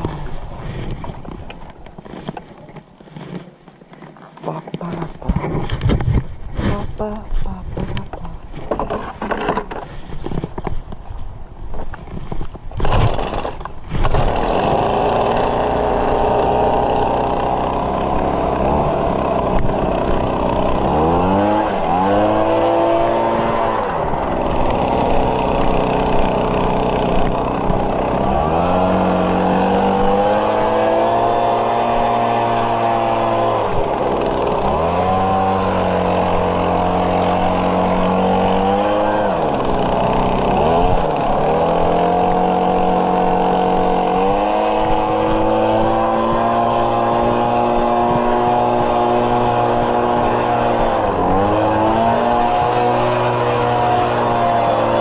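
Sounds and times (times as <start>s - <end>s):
small gasoline engine running: 12.8s - 55.0s.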